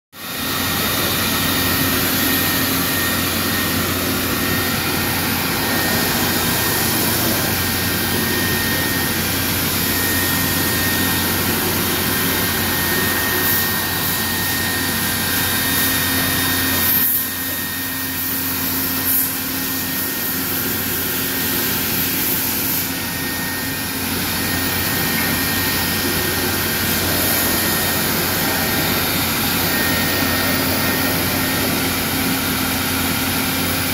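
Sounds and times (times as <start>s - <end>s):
machine whir with high whine: 0.2s - 33.9s.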